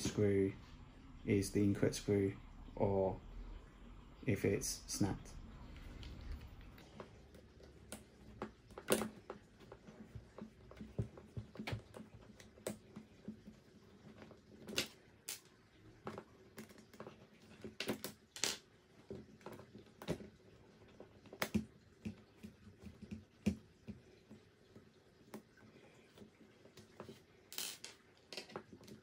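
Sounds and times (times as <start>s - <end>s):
metal parts set on wooden table: 27.5s - 28.7s.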